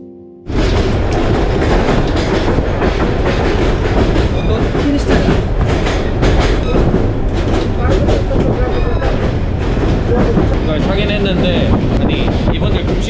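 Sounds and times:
train rumbling and clattering: 0.5s - 13.0s.

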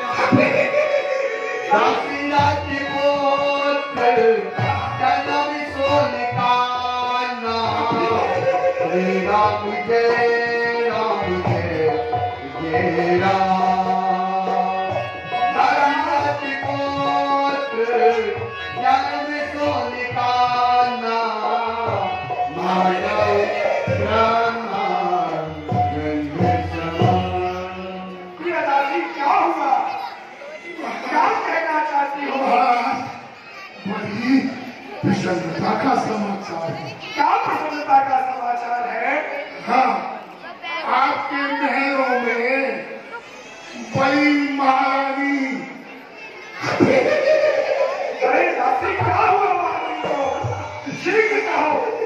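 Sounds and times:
tabla playing: 0.0s - 30.2s, 46.5s - 52.0s.

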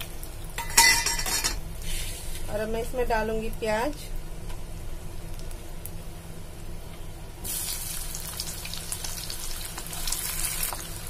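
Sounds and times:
oil sizzling in a frying pan: 0.0s - 2.6s, 5.2s - 6.0s, 7.4s - 11.0s
onions crackling in hot oil: 0.0s - 11.0s.

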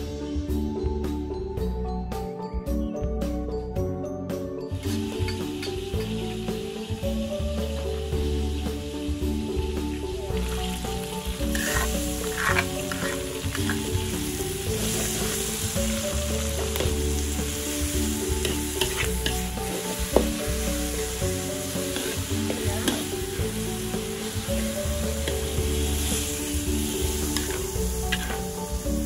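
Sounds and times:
chilies sizzling in a wok: 4.3s - 29.0s
metal spatula scraping a wok: 11.4s - 14.0s, 18.4s - 19.9s, 21.7s - 23.2s, 27.2s - 28.6s.

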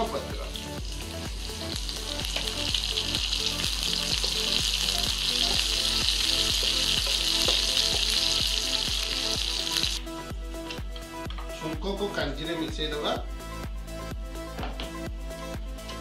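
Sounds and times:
spices sizzling in hot oil: 0.4s - 10.0s.

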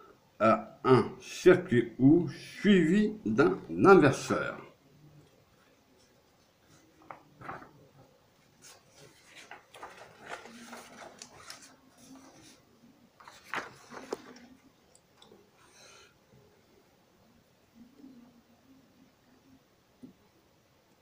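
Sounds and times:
rustling: 5.2s - 15.4s.

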